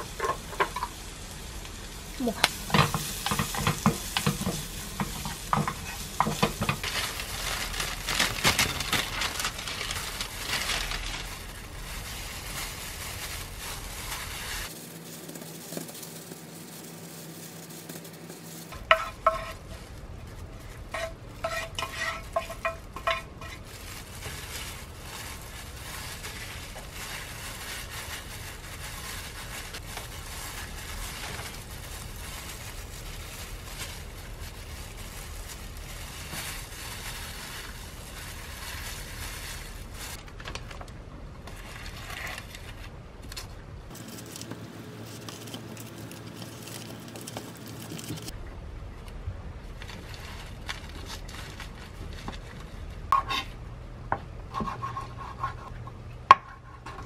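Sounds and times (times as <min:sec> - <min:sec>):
light sizzle: 0:00.0 - 0:40.7
spatula scraping frying pan: 0:18.8 - 0:19.7, 0:20.9 - 0:24.4.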